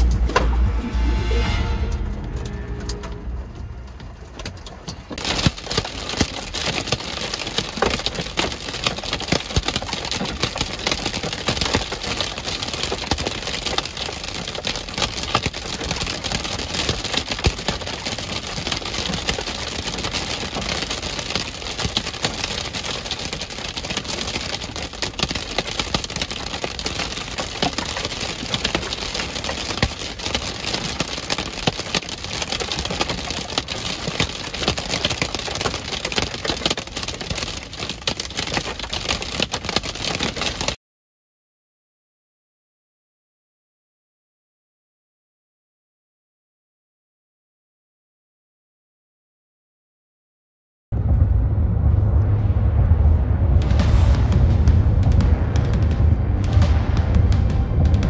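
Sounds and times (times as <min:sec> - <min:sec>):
steady rush of noise: 0:00.0 - 0:39.6, 0:51.0 - 0:58.0
hail and rain pelting a vehicle: 0:04.4 - 0:40.8.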